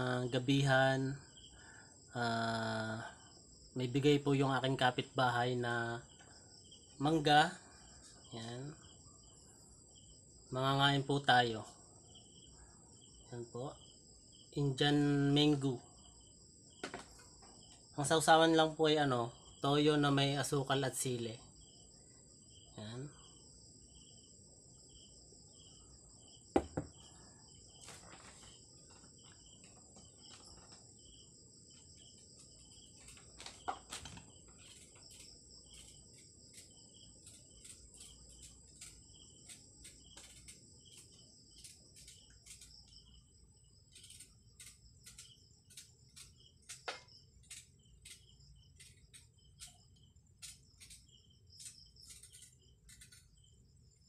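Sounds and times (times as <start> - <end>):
crickets chirping: 0.0 - 54.0
sharp knock: 26.6 - 27.0
knife paring mango skin: 33.0 - 43.0.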